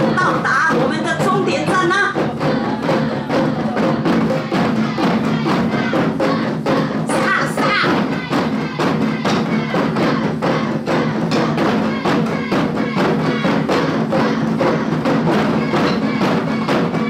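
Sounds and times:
taiko drums playing fast rhythm: 0:00.0 - 0:17.0.

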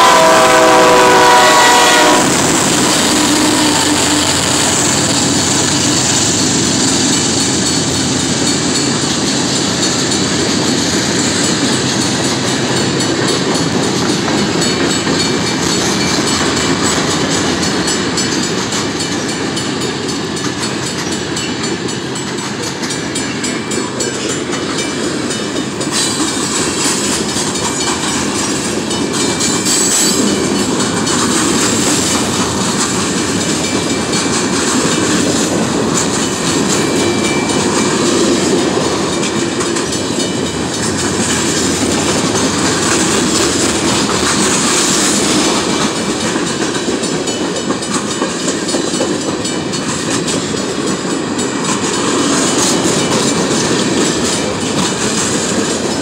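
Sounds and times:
locomotive horn: 0:00.0 - 0:05.0
freight cars rolling and clattering: 0:02.3 - 0:56.0.

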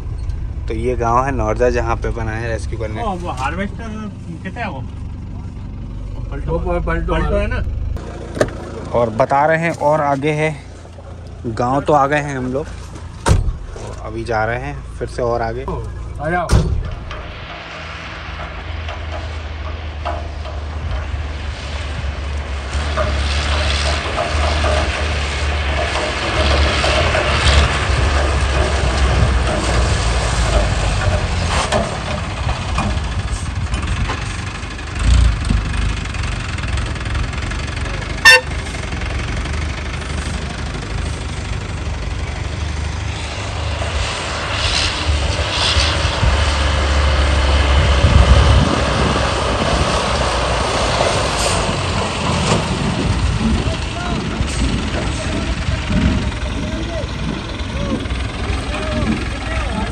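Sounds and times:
vehicle engine and road rumble: 0:00.0 - 0:59.9
thump: 0:13.2 - 0:14.0, 0:16.5 - 0:21.1.

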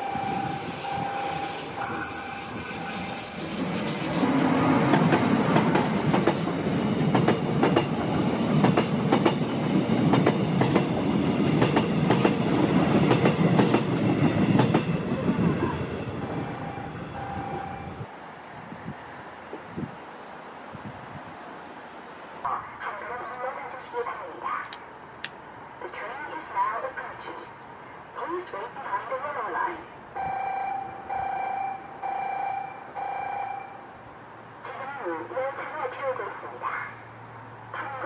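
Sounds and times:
train rumbling past: 0:00.0 - 0:22.5
short repeating beeping tone: 0:16.3 - 0:18.0.

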